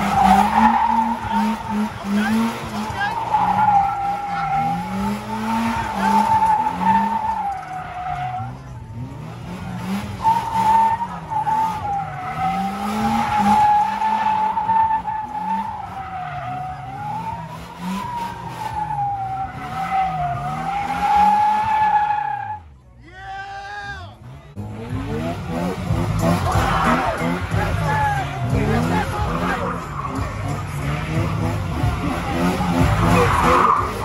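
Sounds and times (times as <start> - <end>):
tyre squealing: 0.0 - 8.6
engine revving: 0.0 - 22.6, 24.2 - 34.0.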